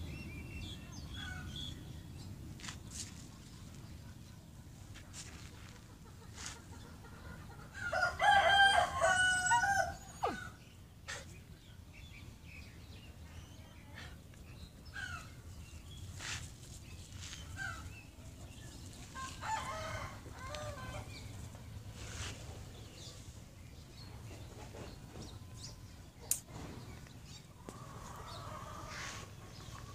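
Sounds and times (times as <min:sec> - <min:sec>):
rooster crowing: 0:07.9 - 0:10.4, 0:19.4 - 0:21.1.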